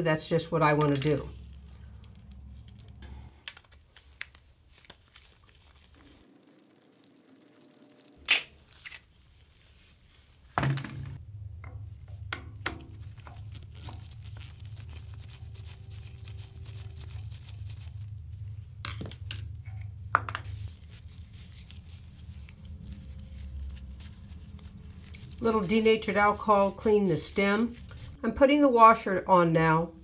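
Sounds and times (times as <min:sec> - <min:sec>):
steady low hum: 0:00.0 - 0:28.4
metal parts clinking: 0:00.8 - 0:04.5, 0:08.2 - 0:09.1.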